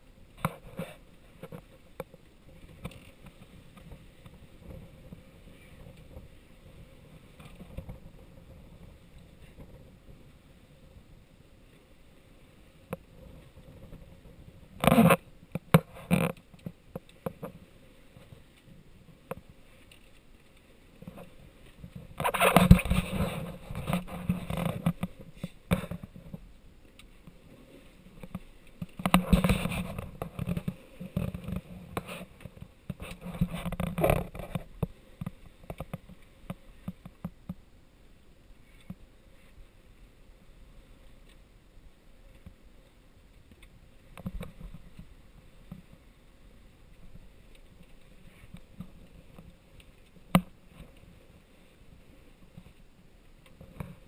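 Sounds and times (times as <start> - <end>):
gusting wind: 0.0 - 54.0
low steady sea rush: 0.0 - 54.0.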